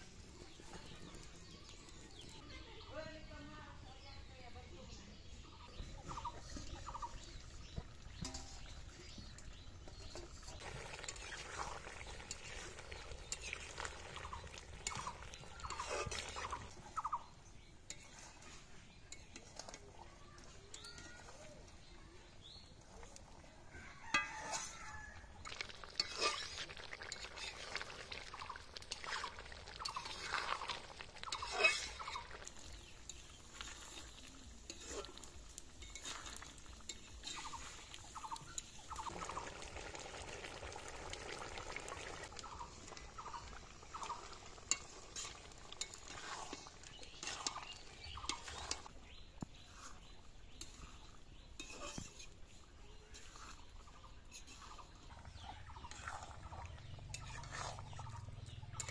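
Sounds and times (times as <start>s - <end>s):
food sizzling: 5.1s - 58.9s
metal spatula scraping pan: 24.1s - 27.8s, 28.9s - 37.9s, 44.7s - 49.0s, 49.6s - 56.3s, 57.1s - 58.9s.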